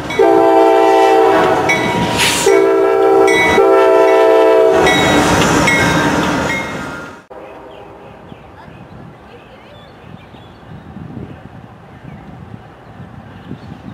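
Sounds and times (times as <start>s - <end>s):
train wheels rolling: 0.0s - 7.8s
locomotive air horn blasts: 0.1s - 5.0s.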